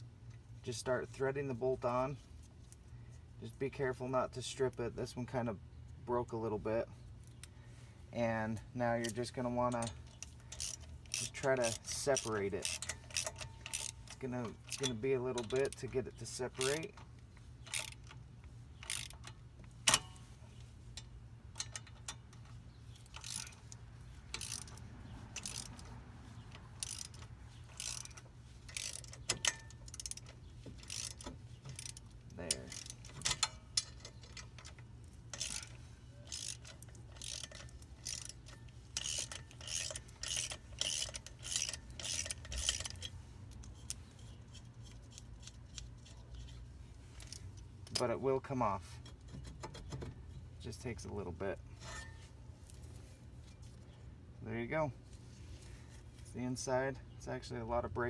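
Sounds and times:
socket ratchet clicking: 9.8s - 15.9s, 16.5s - 18.2s, 18.8s - 20.2s, 21.0s - 25.9s, 26.6s - 46.6s.

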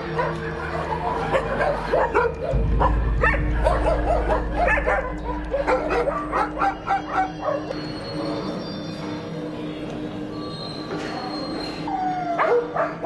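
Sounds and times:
dogs barking and yelping: 0.0s - 8.7s, 10.6s - 13.0s
steady low rumble: 2.5s - 7.8s.

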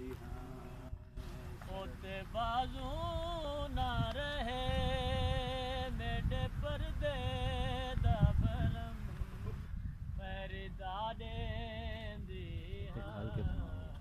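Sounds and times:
wind buffeting microphone: 0.1s - 14.0s
man chanting a lament: 10.2s - 14.0s.

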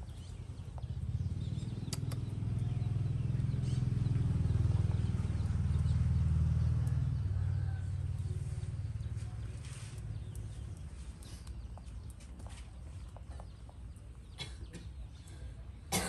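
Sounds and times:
low pulsing engine rumble: 0.0s - 16.0s.

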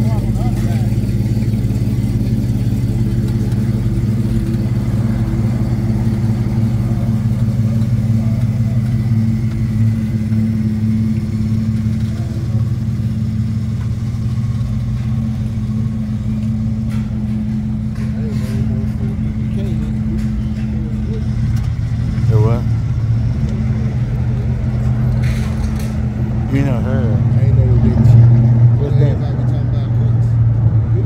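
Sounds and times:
engine and exhaust drone: 0.0s - 31.0s.

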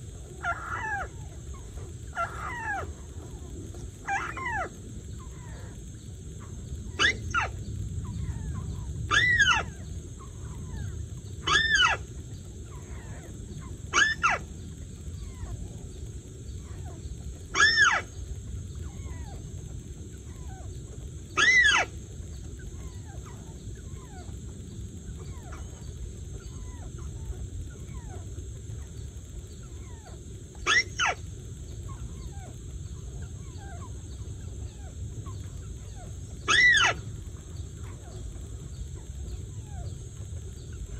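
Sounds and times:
electronic bird calls: 30.6s - 31.3s, 36.4s - 37.1s.

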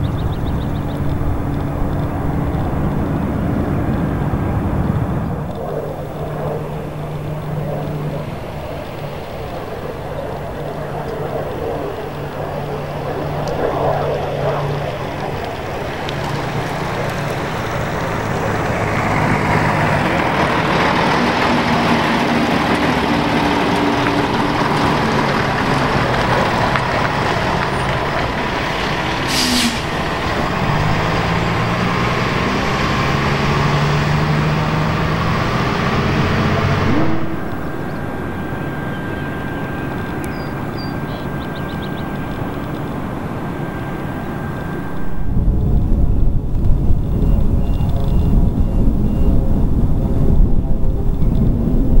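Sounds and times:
steady hum: 0.0s - 33.9s, 35.0s - 47.6s
turboprop engine running: 0.0s - 52.0s
brief hiss: 29.3s - 29.9s.

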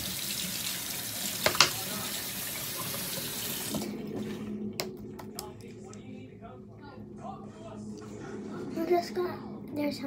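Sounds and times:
tap water running: 0.0s - 5.0s.

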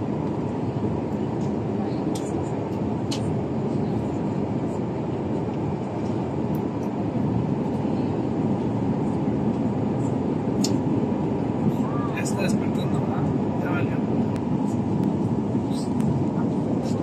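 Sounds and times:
jet airliner cabin noise: 0.0s - 17.0s.

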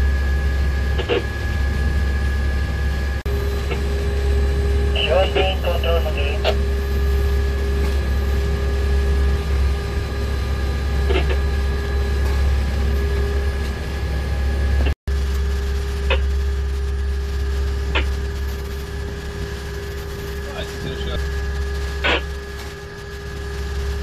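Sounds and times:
boat engines droning: 0.0s - 14.9s
whining tones: 0.0s - 24.0s.

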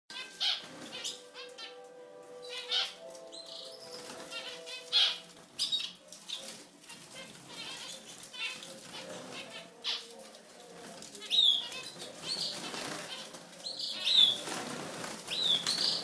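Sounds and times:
goldfinch twittering song: 0.1s - 10.1s, 15.3s - 16.0s.

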